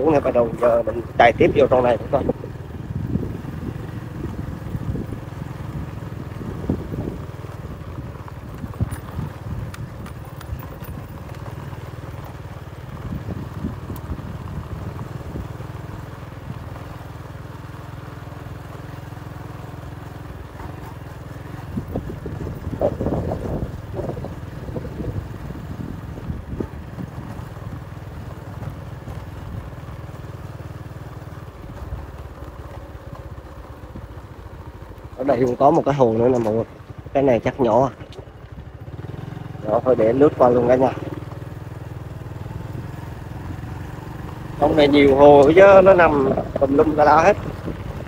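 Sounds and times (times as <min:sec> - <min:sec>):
motorbike engine running: 0:00.0 - 0:48.0
tyres crunching on gravel: 0:00.0 - 0:48.0.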